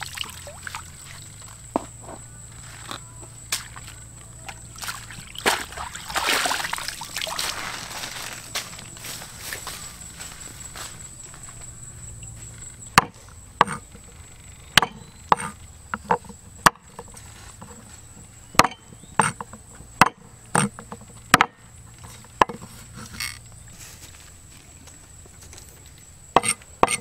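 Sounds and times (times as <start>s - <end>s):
knife chopping vegetables on wooden board: 13.0s - 13.8s, 18.6s - 19.4s, 26.4s - 27.0s.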